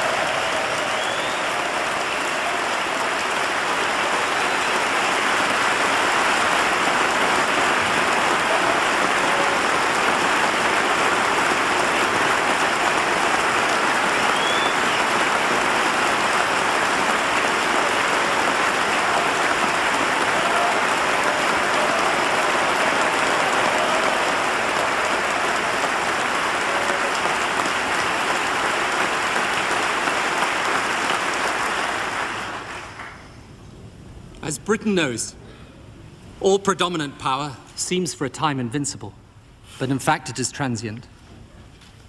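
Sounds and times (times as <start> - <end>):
crowd applauding: 0.0 - 33.3.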